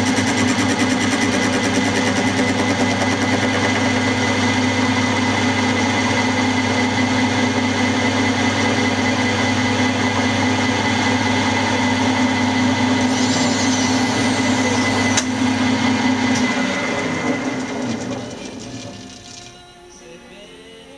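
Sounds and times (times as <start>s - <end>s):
milling machine cutting metal: 0.0s - 19.9s
high sweeping cutter sound: 11.2s - 19.3s.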